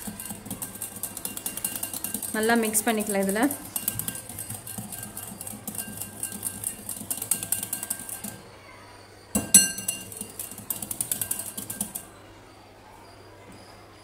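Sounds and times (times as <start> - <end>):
whisk clicking against glass bowl: 0.0 - 8.4, 9.4 - 12.1
sharp glass clink: 9.4 - 10.2.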